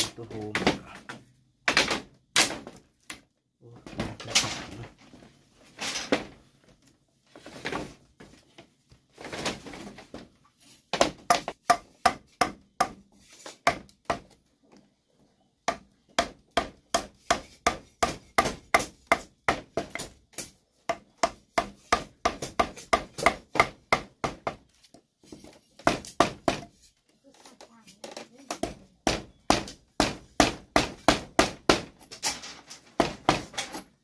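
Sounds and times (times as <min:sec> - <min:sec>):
tool striking wood: 0:10.9 - 0:13.0, 0:13.6 - 0:14.4, 0:15.7 - 0:24.7, 0:25.8 - 0:26.8, 0:28.5 - 0:32.1, 0:33.0 - 0:33.8.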